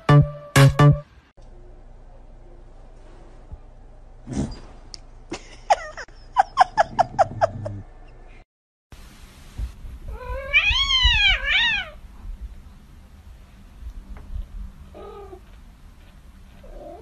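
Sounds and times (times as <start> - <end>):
cat meowing: 10.1 - 12.0.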